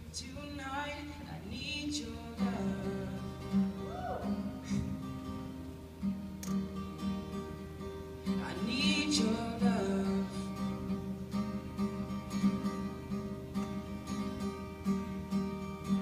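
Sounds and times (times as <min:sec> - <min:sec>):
acoustic guitar strumming: 0:00.0 - 0:16.0
short wavering voice: 0:03.8 - 0:04.9.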